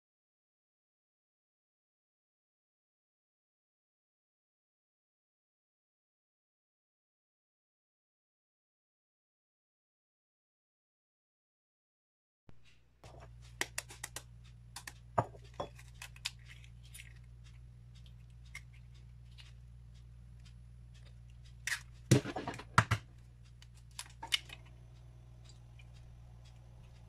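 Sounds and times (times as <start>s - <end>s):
steady low hum: 12.5s - 27.0s
eggshell tapping and crackling: 13.0s - 19.7s.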